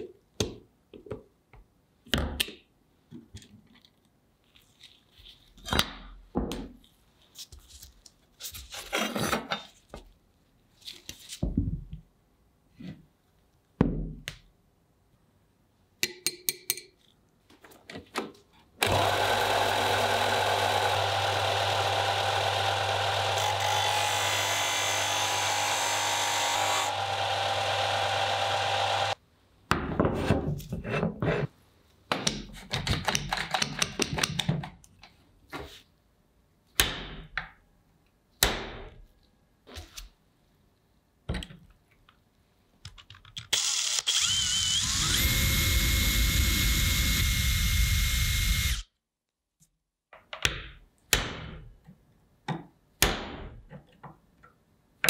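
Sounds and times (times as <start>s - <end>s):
disc sander grinding: 18.8s - 29.2s.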